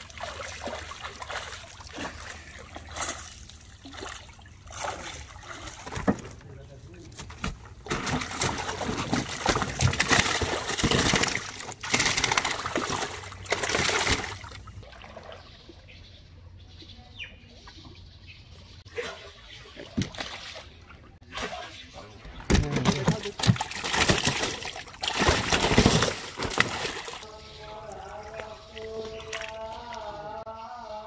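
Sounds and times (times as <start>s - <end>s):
fish thrashing and splashing: 0.0s - 6.4s, 7.2s - 15.4s, 22.5s - 27.3s
small water splashes: 0.0s - 6.4s, 7.7s - 16.0s, 18.9s - 30.2s.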